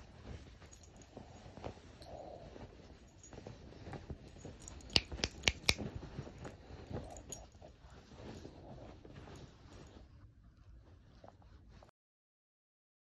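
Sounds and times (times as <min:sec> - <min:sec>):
bed covers rustling: 0:00.0 - 0:11.9.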